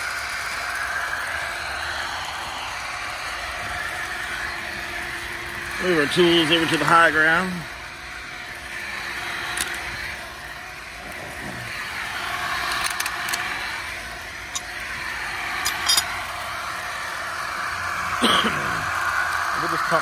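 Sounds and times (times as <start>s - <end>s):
water gushing onto ground: 0.0s - 20.0s
water pump running: 0.0s - 20.0s
metallic clinks of hand tools: 15.6s - 16.1s.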